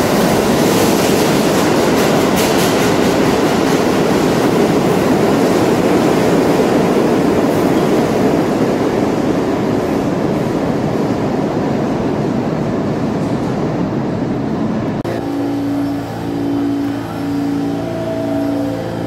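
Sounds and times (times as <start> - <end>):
subway train wheel and rail noise: 0.0 - 19.0
steady hum: 14.9 - 19.0
pulsing tone: 15.1 - 19.0.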